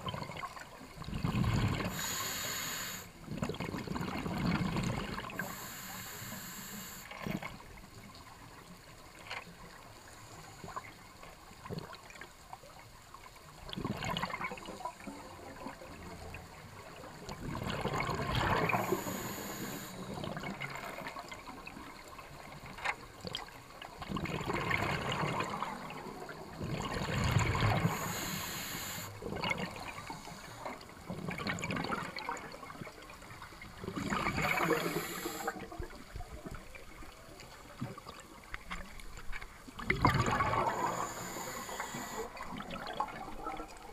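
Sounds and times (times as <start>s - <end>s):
exhaled bubbles rushing: 0.0s - 2.2s, 3.3s - 5.6s, 17.3s - 21.1s, 24.0s - 36.8s, 39.8s - 43.9s
regulator breath hiss: 1.8s - 3.1s, 5.4s - 7.1s, 18.6s - 20.0s, 27.7s - 29.2s, 29.9s - 30.8s, 34.3s - 35.6s, 40.6s - 42.4s.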